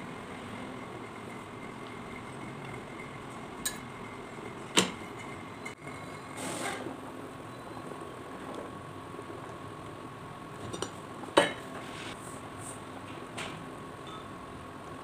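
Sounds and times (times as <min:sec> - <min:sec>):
hissing from boiling pot: 0:00.0 - 0:13.0.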